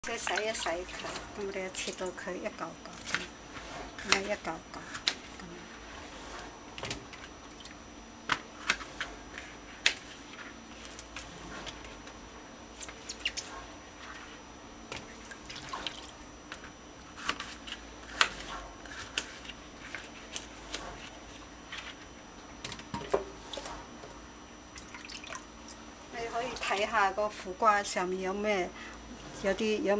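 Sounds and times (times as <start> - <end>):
water drips and splashes: 24.7 - 25.5.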